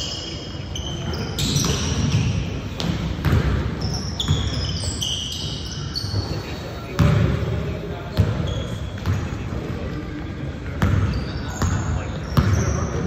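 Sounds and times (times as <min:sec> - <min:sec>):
sneakers squeaking on floor: 0:00.0 - 0:13.0
voices in background: 0:00.0 - 0:13.0
basketball bouncing: 0:01.5 - 0:04.7, 0:07.0 - 0:07.4, 0:08.1 - 0:09.3, 0:10.8 - 0:11.8, 0:12.4 - 0:12.9.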